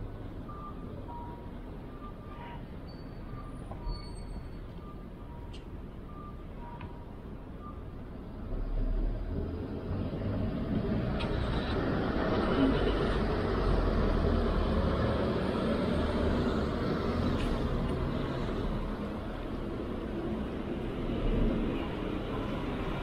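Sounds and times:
vehicle passing on street: 8.2s - 23.0s.

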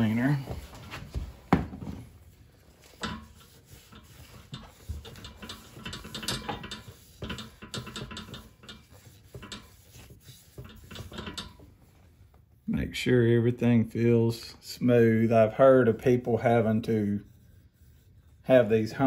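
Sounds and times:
towel rubbing and scraping metal: 0.0s - 12.6s, 14.6s - 19.0s.

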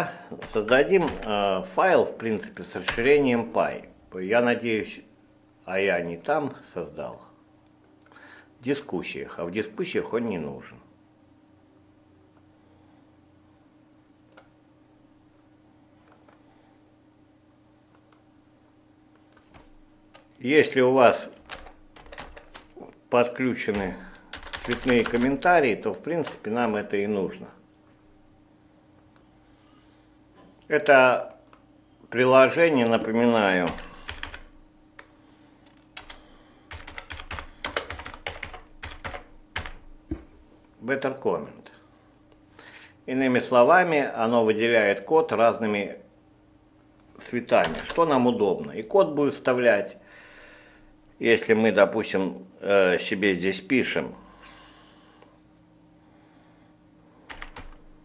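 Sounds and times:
room hum: 0.0s - 58.0s
keyboard typing: 0.4s - 1.5s, 2.8s - 3.3s, 21.3s - 22.9s, 23.6s - 25.5s, 33.6s - 39.9s, 47.6s - 48.0s, 57.3s - 57.9s
computer mouse clicks: 16.0s - 16.4s.

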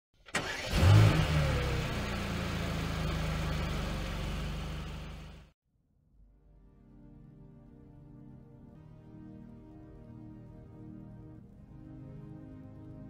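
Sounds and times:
engine starting click: 0.2s - 2.0s
engine running low rumble: 0.5s - 5.5s.

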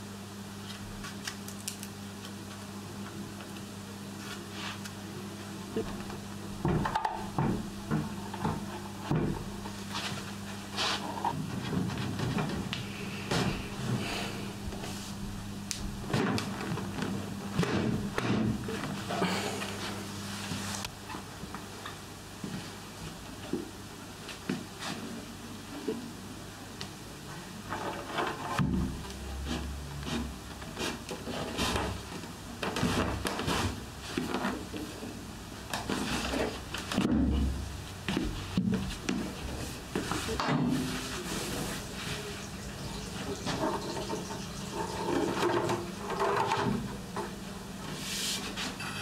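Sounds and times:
hand tool scraping wood: 9.9s - 11.3s, 29.4s - 32.0s
wood rubbing and scraping: 38.2s - 48.8s.

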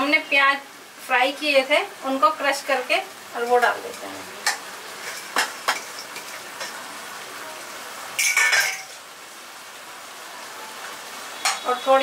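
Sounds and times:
sauce sizzling in pan: 0.0s - 12.0s
ladle scraping metal pan: 5.0s - 6.8s.

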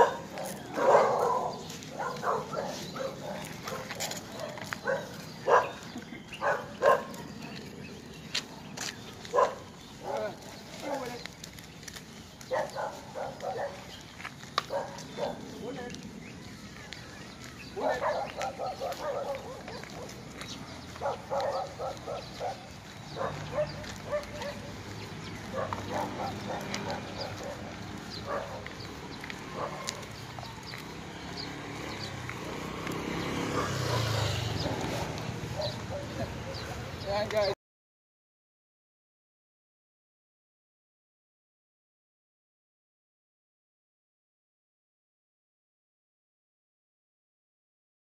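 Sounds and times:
dog barking: 0.0s - 7.4s, 9.2s - 11.1s, 12.5s - 14.0s, 14.6s - 15.5s, 17.8s - 30.4s, 33.0s - 36.8s.

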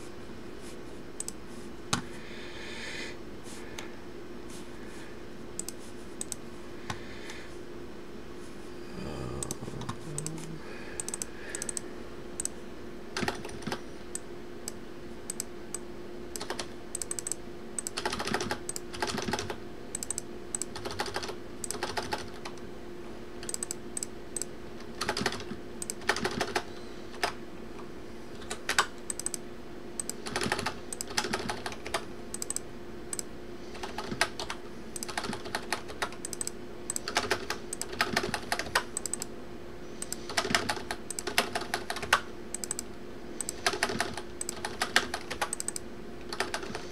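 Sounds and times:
faint steady hum: 0.0s - 46.9s
keyboard typing clicks: 1.2s - 2.0s, 5.6s - 7.0s, 9.4s - 11.8s, 12.4s - 12.6s, 13.2s - 22.6s, 23.4s - 27.4s, 28.4s - 29.4s, 30.0s - 39.3s, 40.0s - 46.8s.

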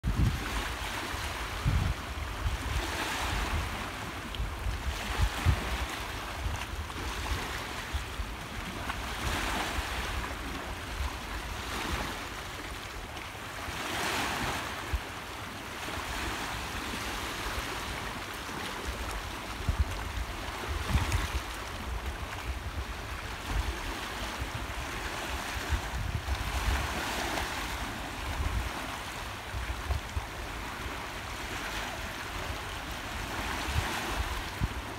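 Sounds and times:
wind buffeting microphone: 0.0s - 12.2s, 18.8s - 31.0s, 32.3s - 34.9s
sea waves washing over rocks: 0.0s - 34.9s.

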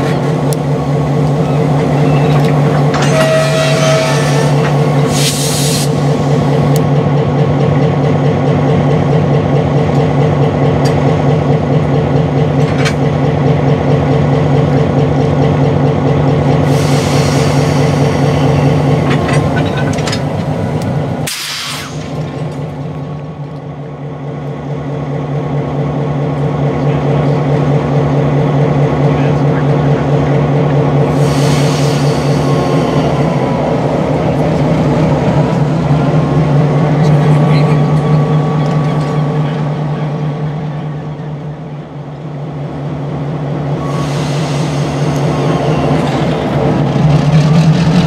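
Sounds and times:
diesel locomotive engine droning: 0.0s - 48.0s
compressed air hissing: 4.4s - 6.3s, 21.2s - 22.0s
sharp blast of air: 5.1s - 6.0s, 21.3s - 22.2s.

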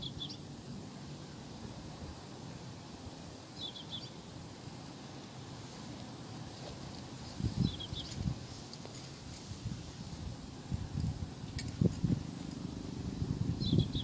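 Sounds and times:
small bird chirping: 0.0s - 0.5s, 3.5s - 4.3s, 7.4s - 8.3s, 13.5s - 14.0s
wind on microphone: 7.0s - 14.0s.

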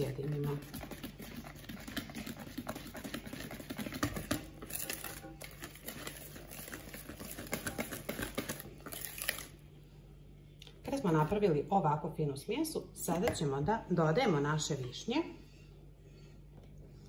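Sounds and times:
whisk clicking against bowl: 0.0s - 8.7s.

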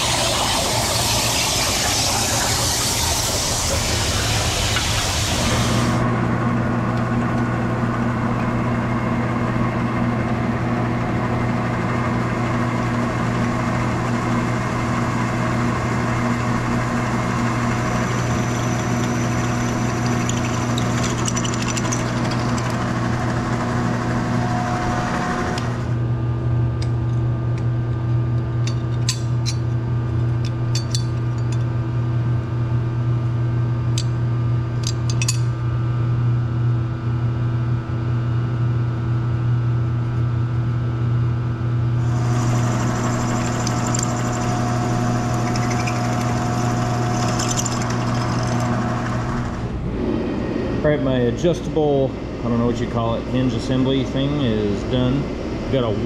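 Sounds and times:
drill cutting steel: 0.0s - 5.9s, 42.1s - 49.4s
milling machine motor hum: 0.0s - 6.3s, 7.3s - 26.2s, 41.9s - 56.0s.

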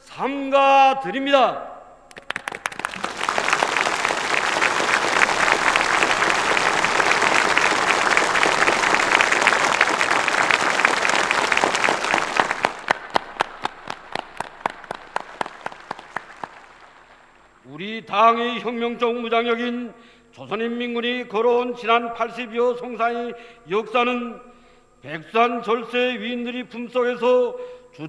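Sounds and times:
crowd clapping in unison: 2.1s - 17.7s.

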